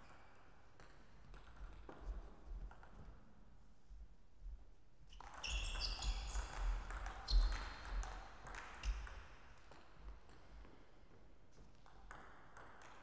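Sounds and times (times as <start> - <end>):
shoes squeaking on court floor: 5.1 - 7.9.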